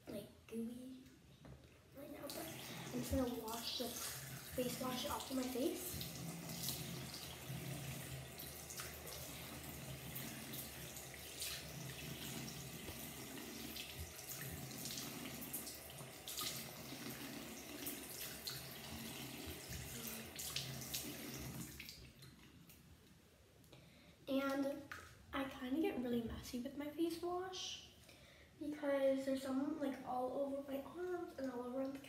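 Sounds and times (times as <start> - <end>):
sink tap running: 2.2 - 22.0.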